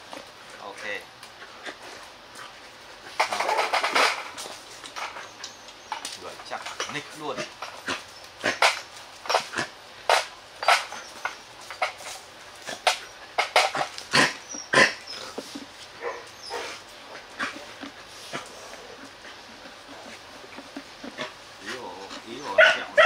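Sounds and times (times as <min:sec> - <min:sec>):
dogs yipping and whimpering: 0:04.9 - 0:06.1, 0:10.6 - 0:11.5, 0:12.7 - 0:23.0.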